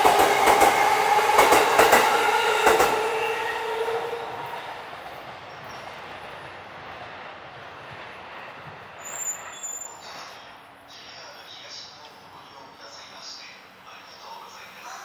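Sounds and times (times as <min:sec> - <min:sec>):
train rumbling: 0:00.0 - 0:15.0
high squeal: 0:09.0 - 0:10.5.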